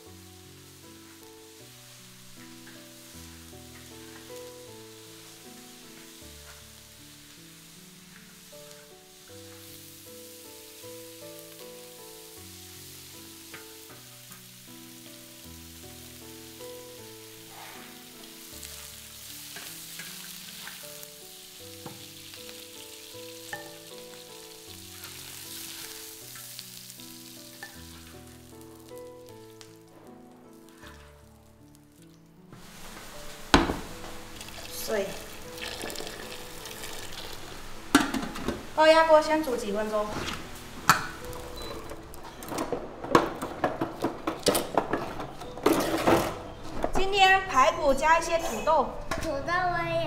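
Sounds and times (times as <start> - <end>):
meat sizzling in oil: 0.0 - 42.2
spatula scraping a wok: 17.4 - 21.1, 24.7 - 28.6.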